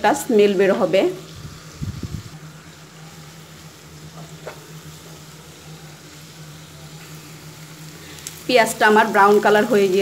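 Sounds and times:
onions sizzling in oil: 0:00.0 - 0:10.0
steady low hum: 0:00.0 - 0:10.0.

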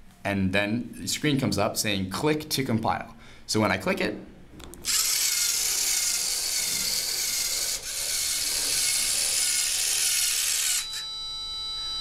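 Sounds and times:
servo motor whirring: 0:04.8 - 0:11.1.

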